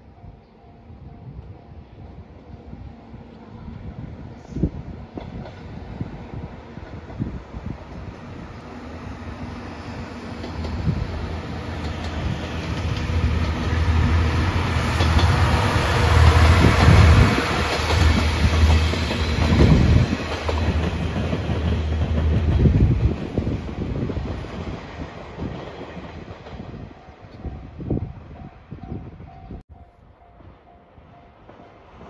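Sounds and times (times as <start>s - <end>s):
passenger train passing: 0.0s - 32.0s
wheels clacking over rail joints: 14.5s - 23.4s.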